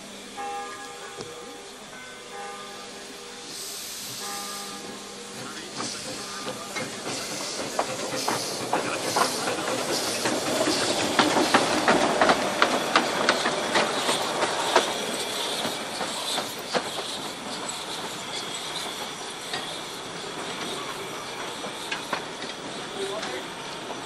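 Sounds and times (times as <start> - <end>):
steam locomotive hissing: 0.0 - 24.0
wheels clicking over rail joints: 5.5 - 24.0.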